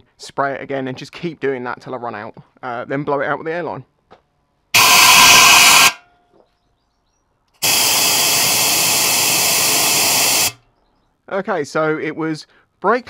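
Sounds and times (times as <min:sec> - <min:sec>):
compressed air blow gun hissing: 0:04.8 - 0:06.0, 0:07.6 - 0:10.6.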